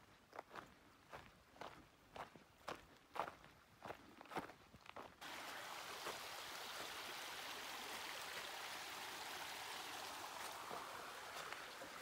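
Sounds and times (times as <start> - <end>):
creek flowing over rocks: 5.2 - 12.0.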